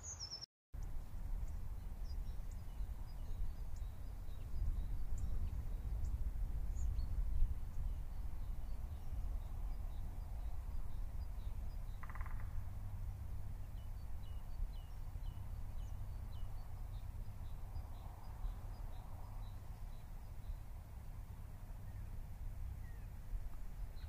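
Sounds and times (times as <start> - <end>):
bird chirps: 0.0 - 0.4, 1.4 - 12.9.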